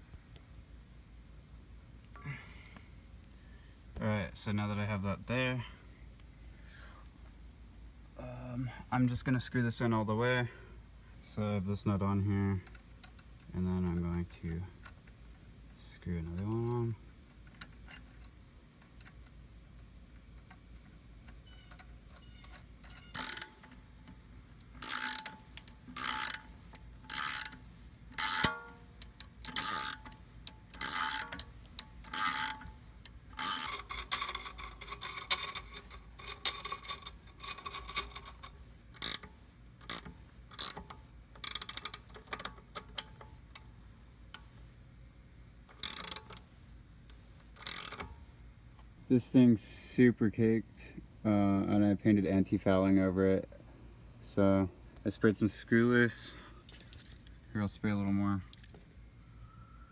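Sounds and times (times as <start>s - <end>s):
ratcheting wrench clicking: 12.6s - 14.1s, 16.3s - 44.6s, 45.6s - 46.5s, 47.1s - 48.3s.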